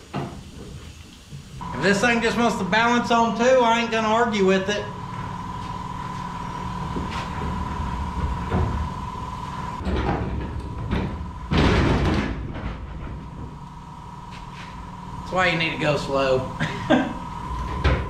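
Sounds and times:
metal clunking and scraping: 9.8s - 13.6s.

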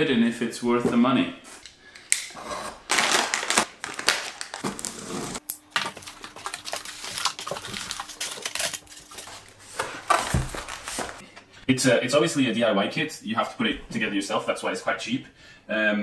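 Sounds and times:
cardboard flaps scraping and rustling: 4.3s - 5.4s, 6.0s - 11.2s.

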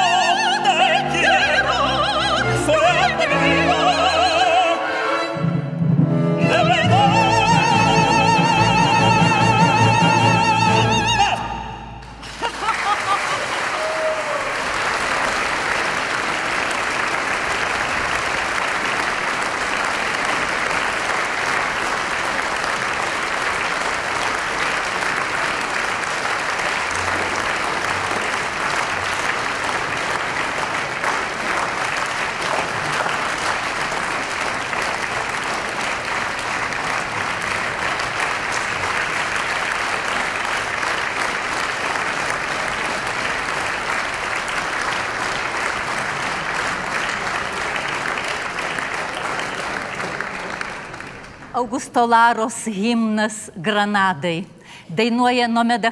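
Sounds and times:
audience applauding: 12.0s - 51.6s.

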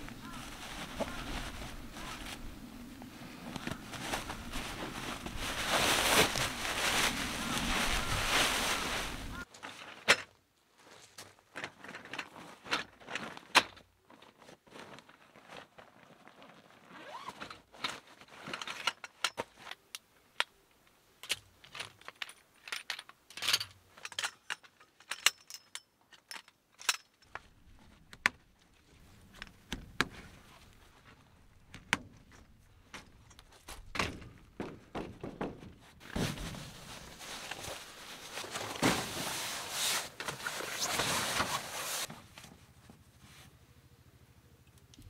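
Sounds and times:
rubbing and rustling: 0.0s - 9.9s, 33.4s - 43.6s.

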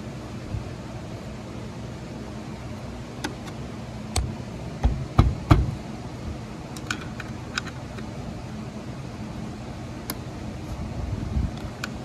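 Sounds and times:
metal parts clicking and knocking: 6.8s - 8.0s.

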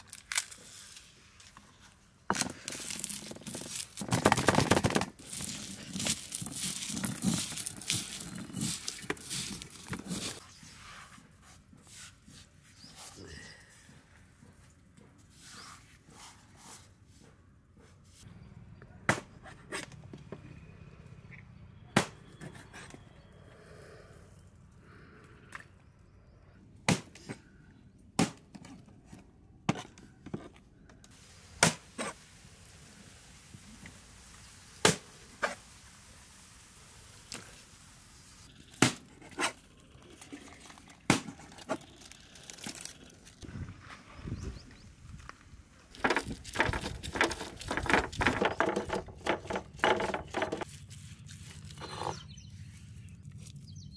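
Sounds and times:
crinkling and rustling: 0.0s - 10.4s, 39.1s - 44.2s, 44.9s - 52.4s.

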